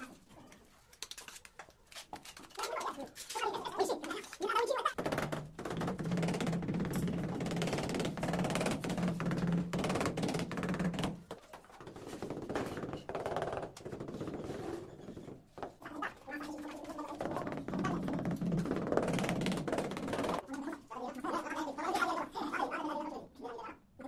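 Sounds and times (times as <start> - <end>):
rubber mallet tapping tiles: 5.0 - 11.2, 16.9 - 20.4.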